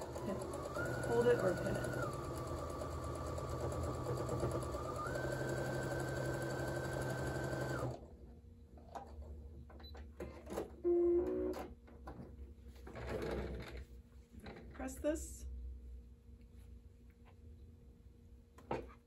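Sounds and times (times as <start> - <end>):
sewing machine motor whine: 0.0 - 8.0.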